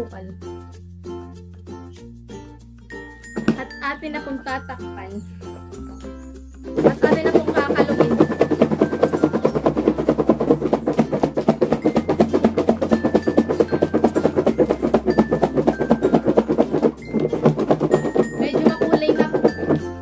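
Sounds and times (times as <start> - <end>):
background music: 0.0 - 20.0
fruit rattling in plastic container: 6.8 - 20.0.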